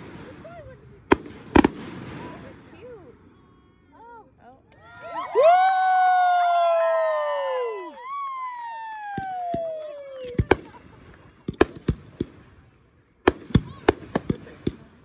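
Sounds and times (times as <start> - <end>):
firework bangs and crackling: 0.0 - 3.1, 8.6 - 15.0
firework falling whistle: 8.0 - 10.6.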